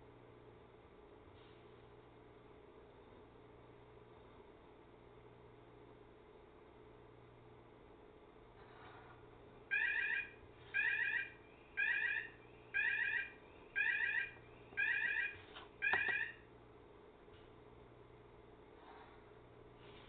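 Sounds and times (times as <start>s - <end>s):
electronic alarm beeping: 9.7s - 16.4s.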